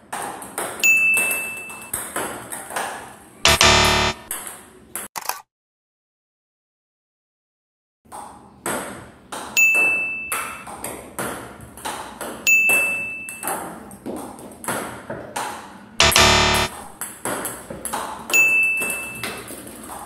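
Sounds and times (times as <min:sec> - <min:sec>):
short high steady tone: 0:03.5 - 0:04.3, 0:16.0 - 0:16.9.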